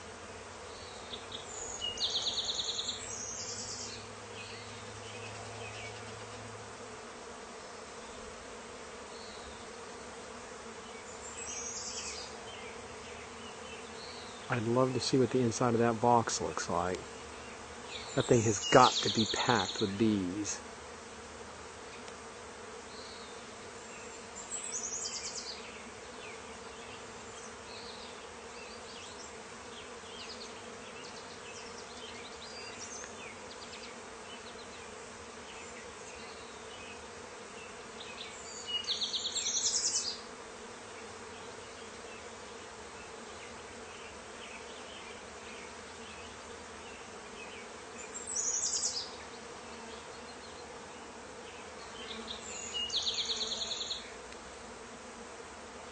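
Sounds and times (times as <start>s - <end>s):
bee swarm buzzing: 0.0s - 55.9s.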